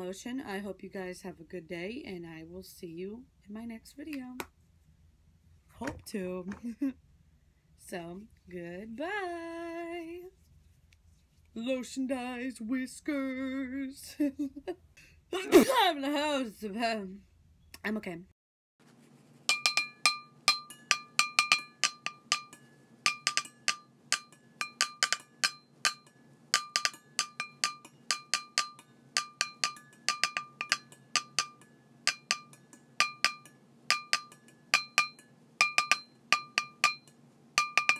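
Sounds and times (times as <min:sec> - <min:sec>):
bright clinking percussion music: 0:19.5 - 0:37.9.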